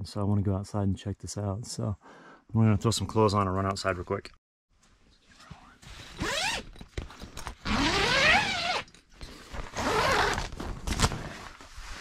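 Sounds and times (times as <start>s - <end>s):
tent zipper rasping: 5.9s - 6.8s, 7.5s - 12.0s.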